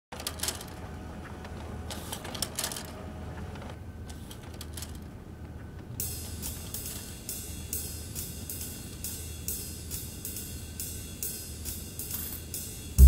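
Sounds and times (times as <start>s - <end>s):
music with hi-hat beat: 6.0s - 13.0s.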